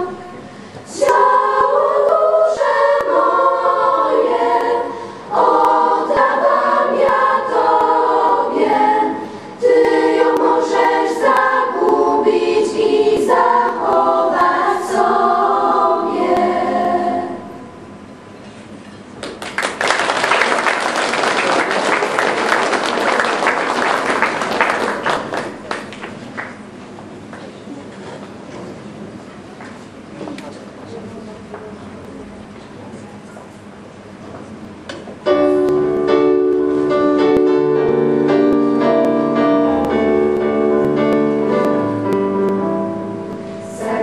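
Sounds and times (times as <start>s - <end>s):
choir singing unaccompanied: 0.0s - 18.1s, 35.3s - 44.0s
audience applauding: 19.2s - 26.6s.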